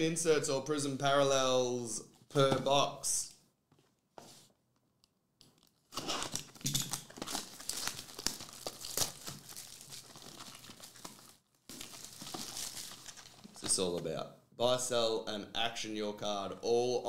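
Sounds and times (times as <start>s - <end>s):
plastic shrink wrap crinkling: 5.5s - 13.8s.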